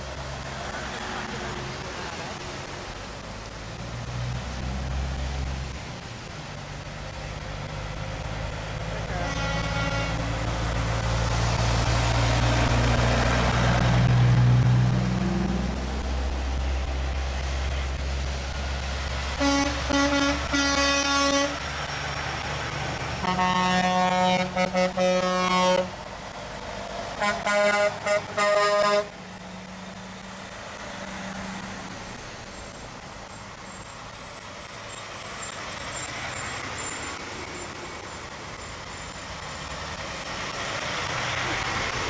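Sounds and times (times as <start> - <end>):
diesel engines running: 0.0 - 42.0
tyres hissing on wet road: 0.0 - 42.0
truck air horns: 9.0 - 10.3, 19.4 - 21.7, 23.2 - 26.0, 27.1 - 29.2.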